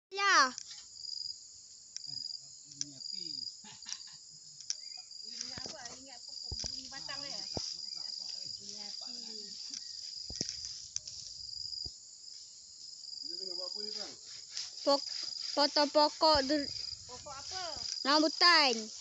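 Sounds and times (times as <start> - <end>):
insects chirring: 0.1 - 19.0
sharp clicks: 2.7 - 3.0, 3.9 - 6.9.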